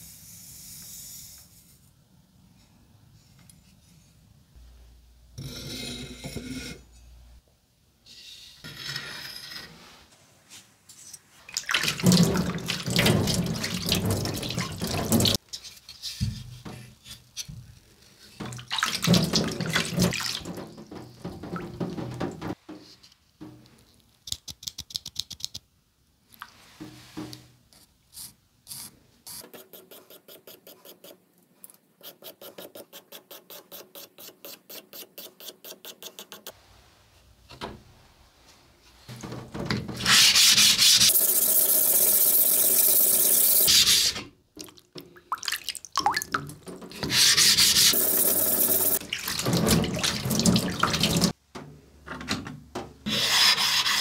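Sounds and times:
tap water running into sink: 11.6s - 15.4s, 48.0s - 51.3s
pencil scratching on whetstone: 53.1s - 54.0s.

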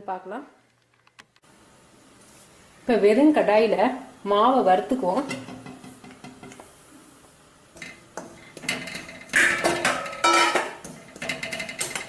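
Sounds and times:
steel bowl clanging on metal pan: 8.6s - 12.0s.

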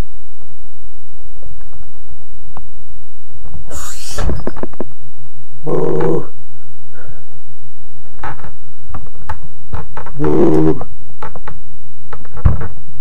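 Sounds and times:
low hum: 0.0s - 13.0s
man grunting with effort: 5.7s - 6.4s, 10.2s - 10.9s
knocks and thumps: 8.1s - 10.2s, 11.2s - 12.8s.

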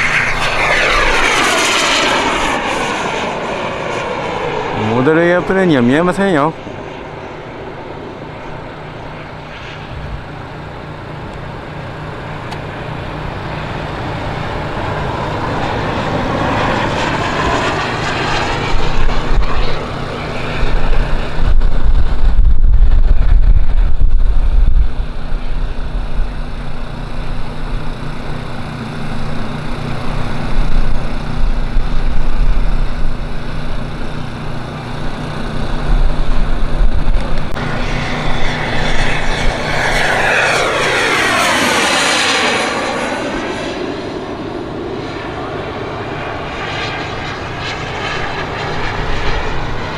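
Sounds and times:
model jet engine passing: 0.0s - 49.9s
heavy low rumble: 17.4s - 44.9s.

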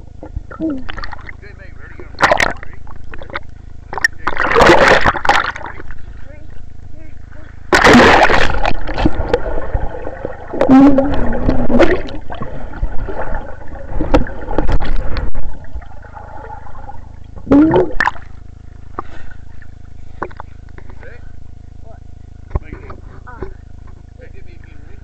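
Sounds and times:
underwater bubbling and gurgling: 2.0s - 20.7s
muffled person calling underwater: 10.5s - 12.3s, 17.4s - 18.0s.

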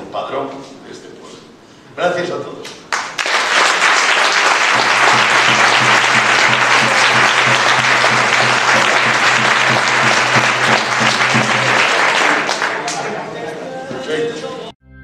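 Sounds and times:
audience applauding: 2.9s - 13.2s.

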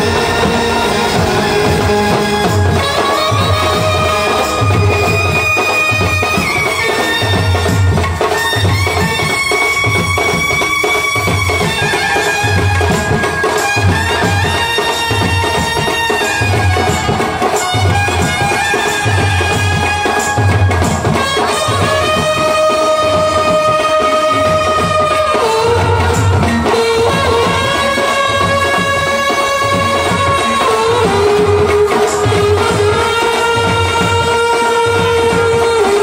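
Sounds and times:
bass drum beating: 0.0s - 6.6s
brass horns playing melody: 0.0s - 7.8s.

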